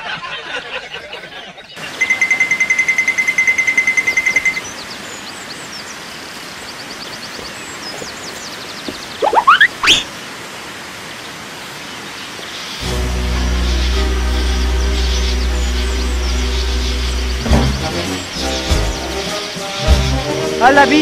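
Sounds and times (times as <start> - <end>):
bird chirps: 1.8 - 10.1
rising whistle: 9.2 - 10.1.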